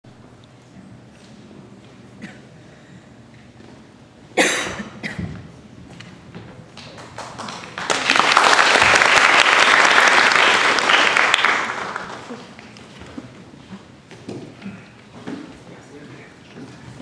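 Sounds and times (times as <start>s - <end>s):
audience clapping: 6.7s - 12.9s.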